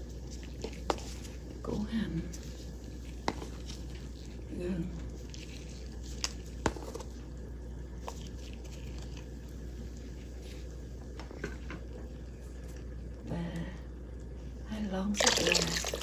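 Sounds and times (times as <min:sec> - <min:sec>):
steady low hum: 0:00.0 - 0:16.0
small water splashes: 0:15.2 - 0:16.0.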